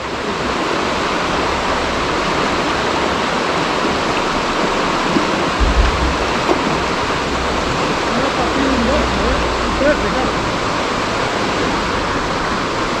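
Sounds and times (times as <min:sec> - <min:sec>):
river water rushing: 0:00.0 - 0:13.0
low rumble: 0:05.6 - 0:09.7.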